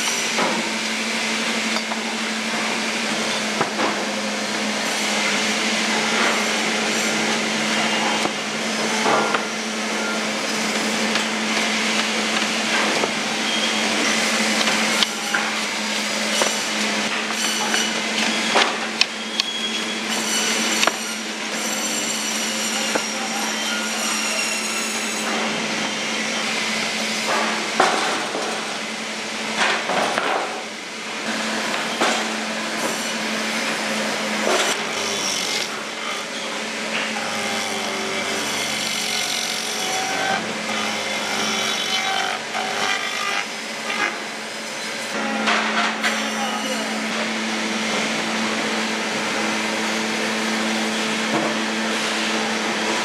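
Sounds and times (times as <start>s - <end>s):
steady machine hum: 30.7s - 45.5s.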